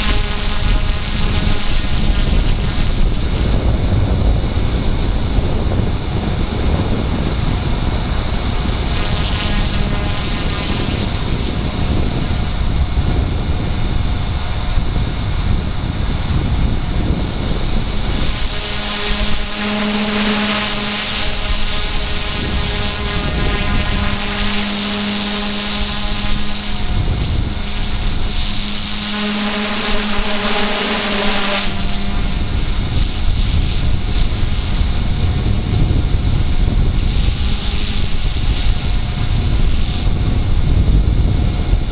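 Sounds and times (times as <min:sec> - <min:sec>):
electric motor high whine: 0:00.0 - 0:41.9
helicopter rotor buzz: 0:00.0 - 0:41.9
wind rumbling on microphone: 0:00.0 - 0:41.9.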